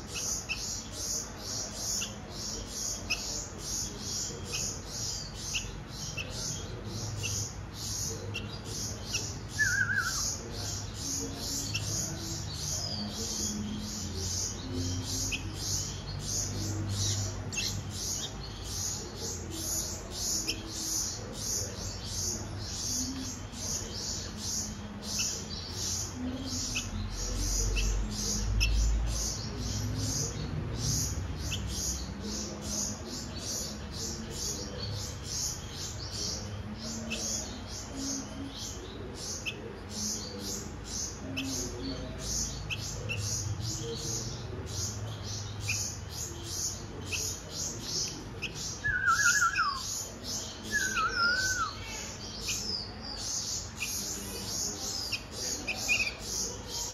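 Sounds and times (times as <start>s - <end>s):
fledglings begging chirps: 0.0s - 56.9s
bird whistled calls: 9.6s - 10.2s, 48.8s - 49.9s.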